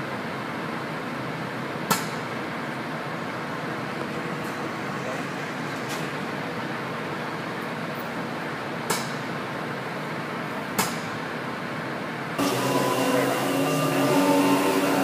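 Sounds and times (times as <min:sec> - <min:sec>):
loud hum with steady tones: 0:00.0 - 0:15.0
pneumatic dispenser hissing: 0:12.4 - 0:15.0.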